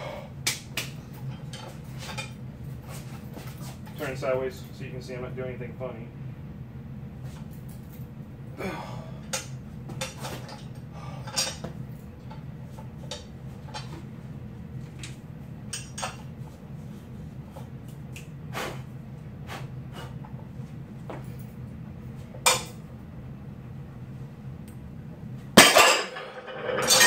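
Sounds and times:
metal weight plates clinking: 0:25.6 - 0:27.0.

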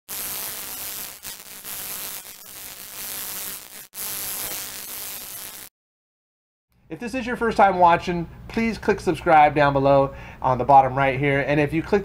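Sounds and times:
static hiss with buzz: 0:00.1 - 0:05.7.

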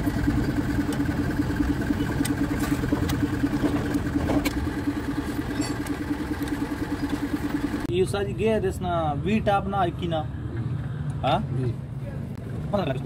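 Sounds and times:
engine idling: 0:00.0 - 0:07.9.

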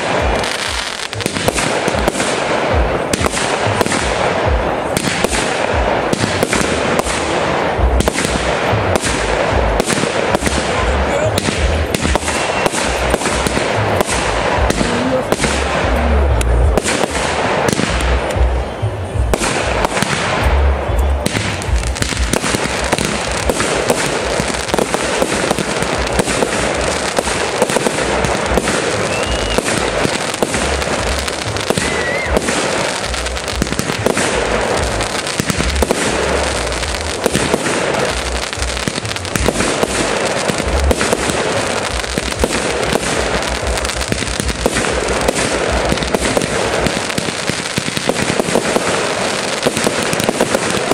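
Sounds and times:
fireworks bangs and booms: 0:00.0 - 0:50.9.

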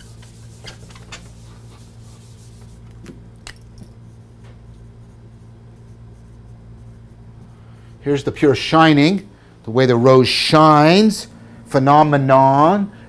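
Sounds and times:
eraser rubbing on whiteboard: 0:00.0 - 0:03.0, 0:04.1 - 0:07.5
steady low hum: 0:00.0 - 0:13.0.

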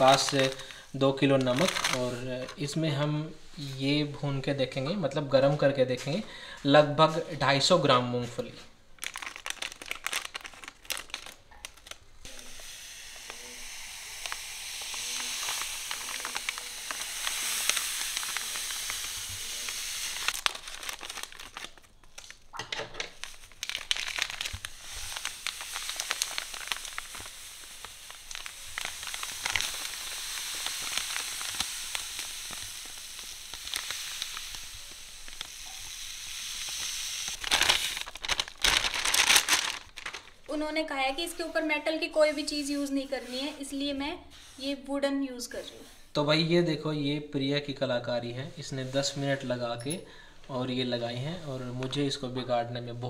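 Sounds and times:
salt pouring into a wok: 0:00.0 - 0:02.4, 0:12.3 - 0:20.7, 0:23.2 - 0:38.6
plastic packet crinkling: 0:00.0 - 0:02.8, 0:09.0 - 0:12.6, 0:13.2 - 0:41.4.

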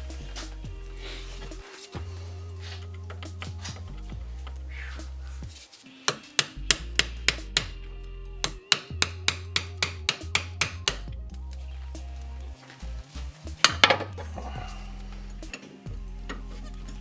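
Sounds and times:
hammer striking metal part: 0:08.4 - 0:11.0.

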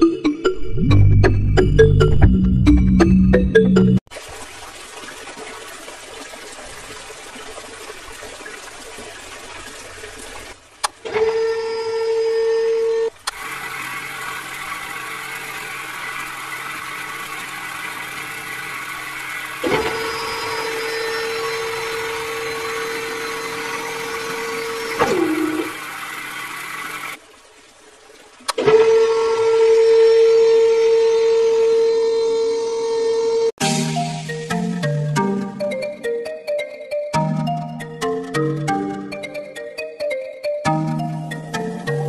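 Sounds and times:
small motor whining: 0:11.2 - 0:27.2
water running from hose: 0:13.3 - 0:27.2.

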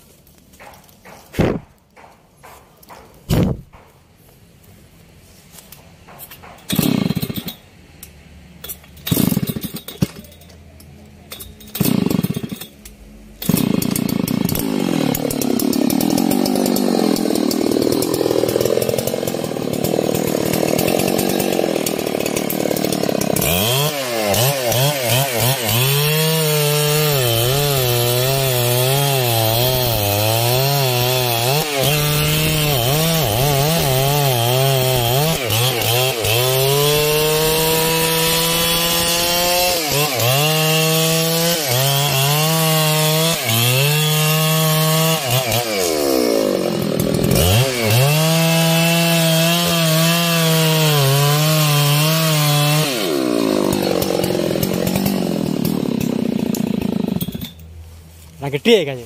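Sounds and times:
chainsaw cutting wood: 0:00.5 - 0:04.0, 0:06.1 - 0:07.6, 0:09.0 - 0:10.2, 0:11.6 - 0:12.8, 0:13.4 - 0:57.6.

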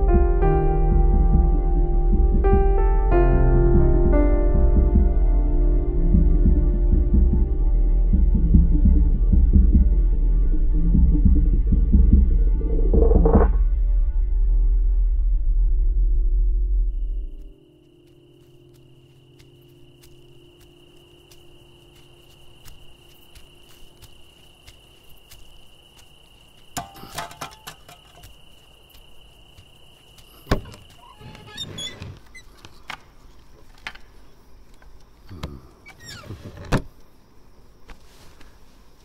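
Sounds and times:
high cricket trill: 0:16.9 - 0:39.0
rustles: 0:37.8 - 0:39.0.

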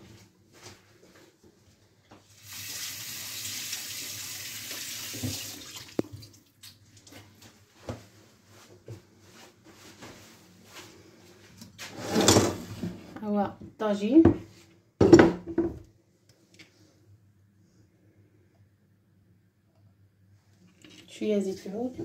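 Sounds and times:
tap water running: 0:02.4 - 0:07.2.

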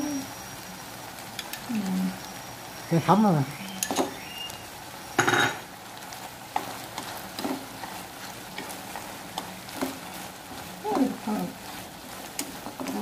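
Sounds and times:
food sizzling in a frying pan: 0:00.0 - 0:13.0
chopsticks scraping and tapping pan: 0:06.5 - 0:13.0.

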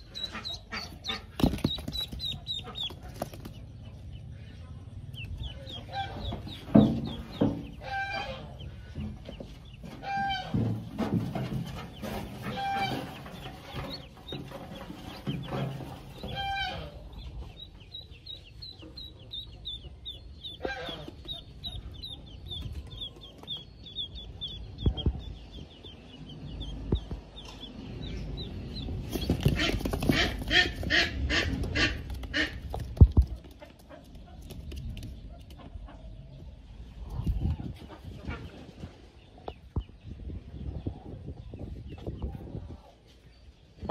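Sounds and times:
ducklings peeping: 0:00.0 - 0:43.9
sharp knocks and rustles: 0:01.2 - 0:03.7, 0:06.2 - 0:16.8.

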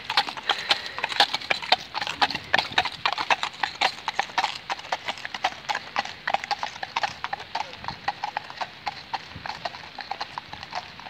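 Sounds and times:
horse hoofbeats on wet pavement: 0:00.0 - 0:11.0.

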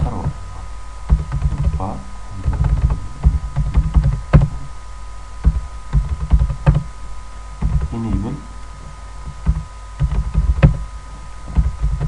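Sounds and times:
keyboard typing: 0:01.1 - 0:01.8, 0:02.4 - 0:04.5, 0:05.4 - 0:06.9, 0:07.6 - 0:07.9, 0:09.3 - 0:10.8, 0:11.5 - 0:12.0.

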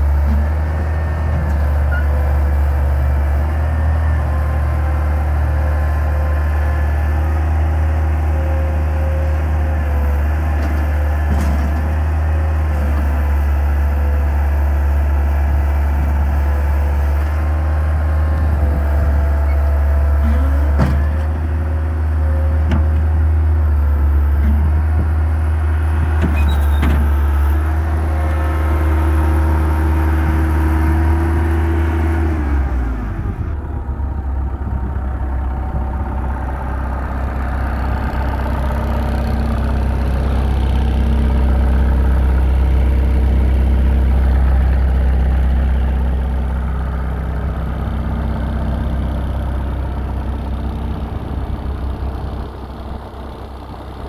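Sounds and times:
diesel engine revving and idling: 0:00.0 - 0:54.0.

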